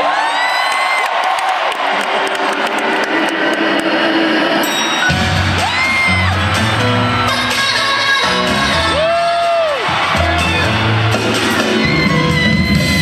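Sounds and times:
crowd whooping: 0:00.0 - 0:03.6, 0:05.2 - 0:13.0
pop music over arena sound system: 0:00.0 - 0:13.0
person singing: 0:05.6 - 0:09.6.

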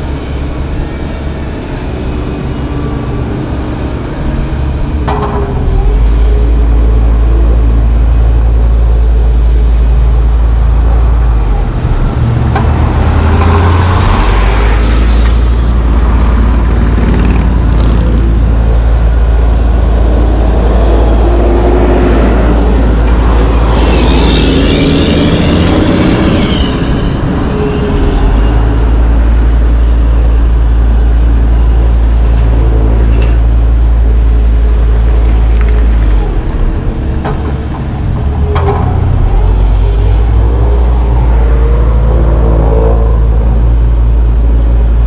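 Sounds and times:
road traffic noise: 0:00.0 - 0:45.0
low engine rumble: 0:26.9 - 0:45.0.

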